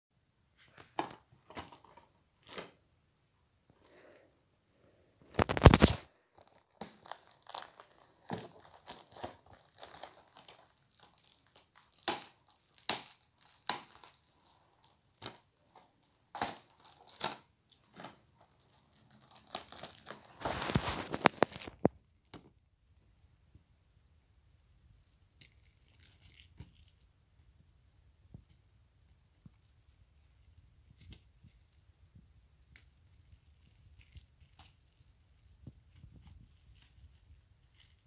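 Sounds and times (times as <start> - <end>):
plastic shrink-wrap crackling: 5.3 - 22.0.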